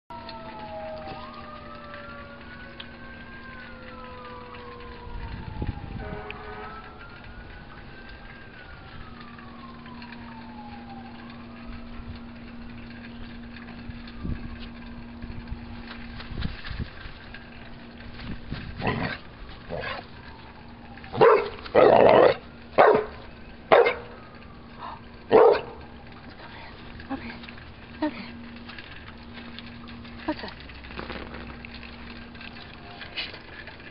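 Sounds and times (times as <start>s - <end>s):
faint wailing siren tone: 0.1s - 33.9s
dog barking: 21.2s - 21.9s, 22.8s - 23.1s, 23.7s - 24.1s, 25.3s - 25.8s.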